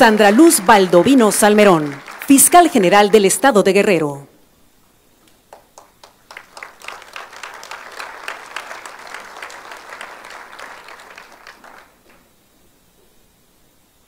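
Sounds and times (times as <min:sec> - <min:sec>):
audience applauding: 0:00.0 - 0:03.7, 0:05.5 - 0:12.3.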